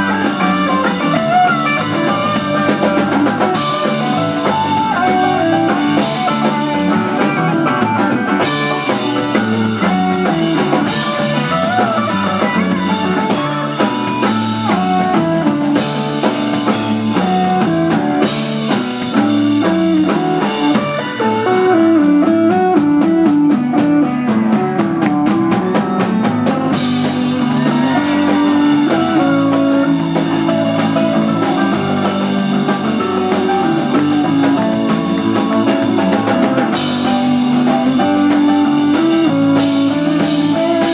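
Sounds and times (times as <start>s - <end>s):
electric guitar lead: 0.0s - 40.9s
rock band playing: 0.0s - 40.9s.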